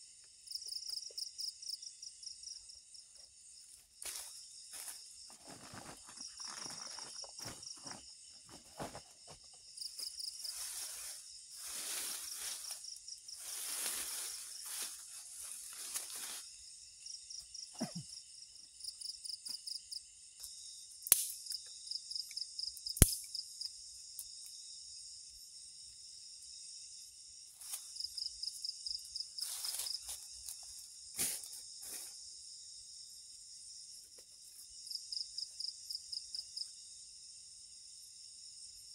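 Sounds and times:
night insects chirping: 0.0s - 38.9s
rustling in dry leaves: 4.0s - 8.0s, 9.9s - 16.7s, 29.4s - 32.1s
sharp snaps: 21.0s - 21.6s, 22.8s - 23.4s.

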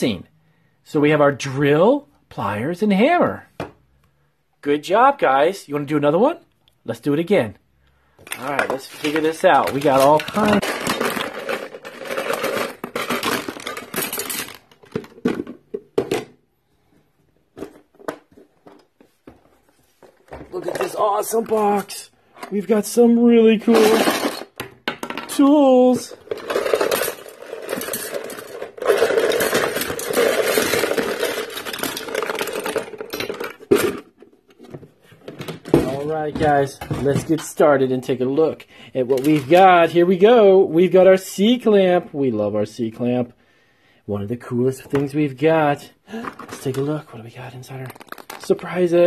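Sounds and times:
plastic toys clattering: 8.2s - 16.9s, 17.5s - 40.6s, 44.8s - 49.0s.

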